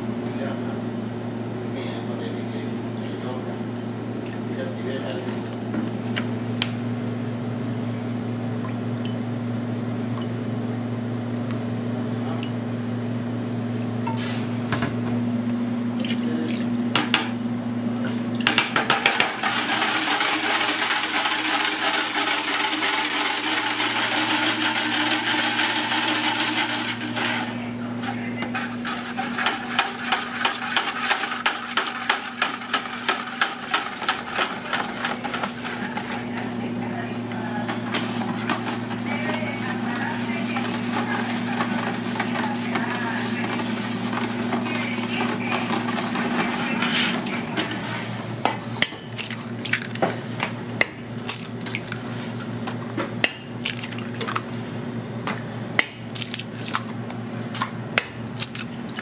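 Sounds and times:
kitchen hum: 0.0s - 59.0s
whisk mixing batter: 28.7s - 48.1s.

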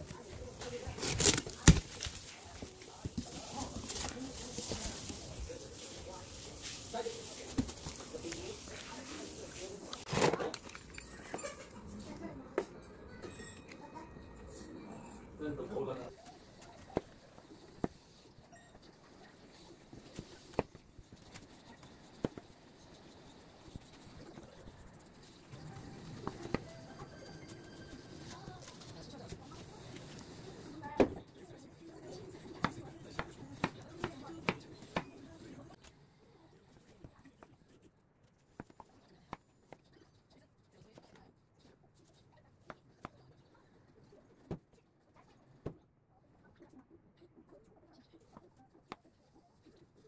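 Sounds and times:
knife cutting watermelon: 0.0s - 5.2s.

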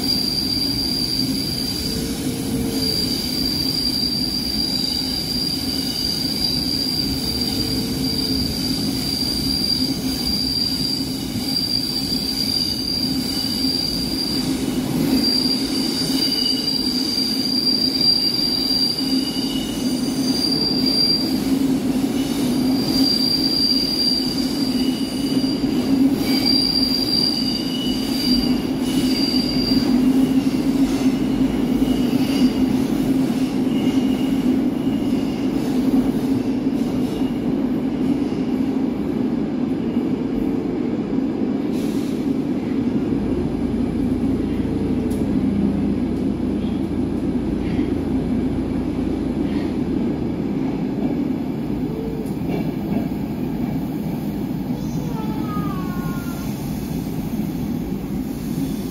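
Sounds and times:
lower wheel squeal: 0.0s - 21.5s, 22.2s - 30.3s
train wheels rumbling on rail: 0.0s - 58.9s
high-pitched wheel squeal: 2.7s - 21.4s, 26.3s - 30.0s.

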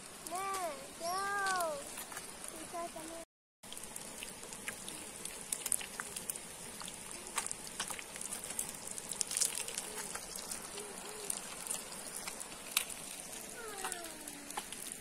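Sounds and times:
fish frying in oil: 0.0s - 15.0s
pops and crackles: 3.7s - 15.0s.

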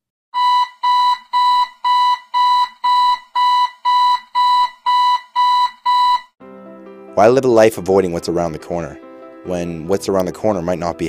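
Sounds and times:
alarm clock beeping: 0.4s - 6.4s.

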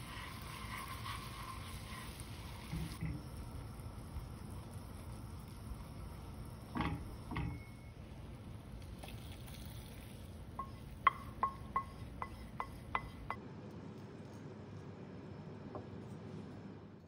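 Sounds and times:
wooden spoon scraping steel pan: 0.0s - 3.0s, 10.6s - 13.4s.

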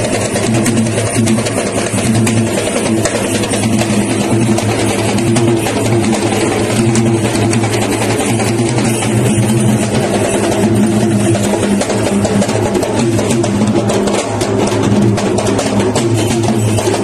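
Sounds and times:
drums beating rapidly: 0.0s - 17.0s.

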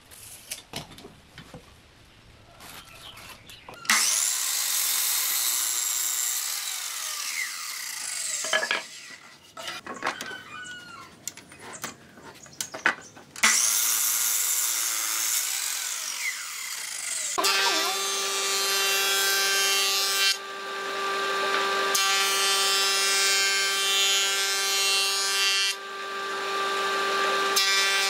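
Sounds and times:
miter saw cutting wood: 3.9s - 9.2s, 13.4s - 28.0s
knocks and clicks of board handling: 11.3s - 13.4s.

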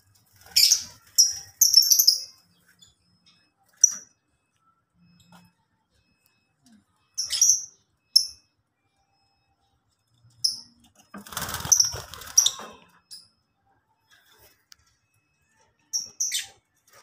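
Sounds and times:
wings rustling and fluttering: 11.2s - 12.8s.

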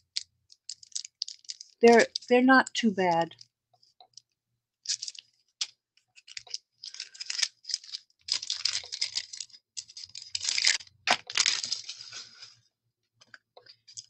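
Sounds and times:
plastic packaging crinkling: 0.0s - 2.4s, 4.8s - 12.6s, 13.6s - 14.0s
sharp plastic crackle: 0.0s - 2.4s, 4.1s - 12.6s.

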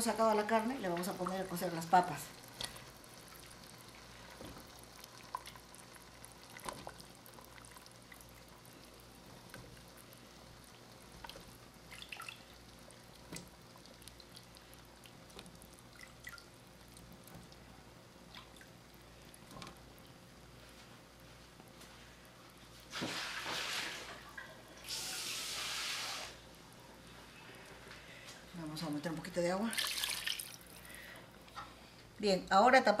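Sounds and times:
small plops and splashes: 11.2s - 12.5s, 29.7s - 30.8s.

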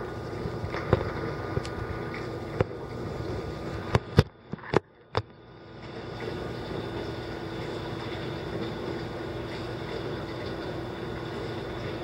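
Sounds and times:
steady low rumble: 0.0s - 5.7s.

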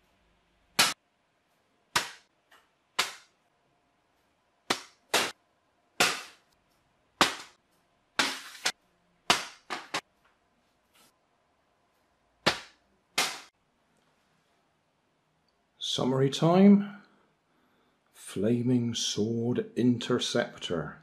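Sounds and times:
paper aeroplane striking surfaces: 6.0s - 6.5s, 7.2s - 7.6s, 8.2s - 10.0s, 12.4s - 13.5s
paper scraping: 8.2s - 8.8s.

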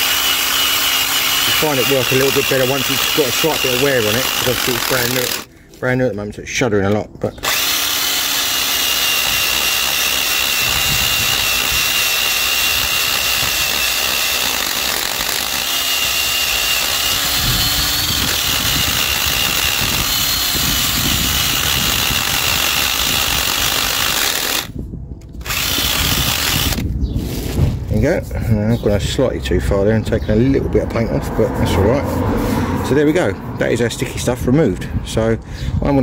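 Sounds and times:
cordless drill whining: 0.0s - 5.5s, 7.4s - 26.9s.

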